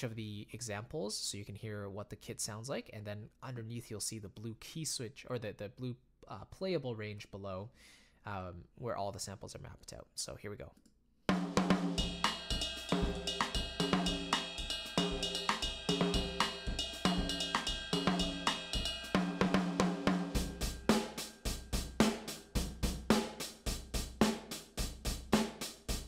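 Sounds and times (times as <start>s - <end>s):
acoustic drum kit beat: 11.3s - 26.0s.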